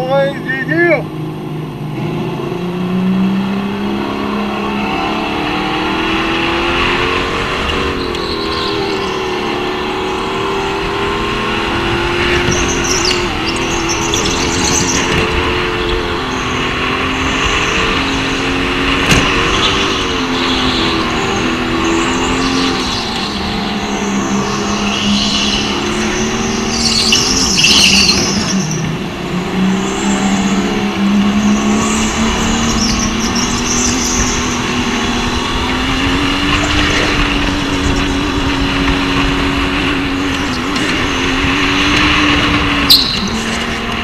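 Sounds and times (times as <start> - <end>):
go-kart motor running: 0.0 - 44.0
tyres squealing: 22.7 - 29.0.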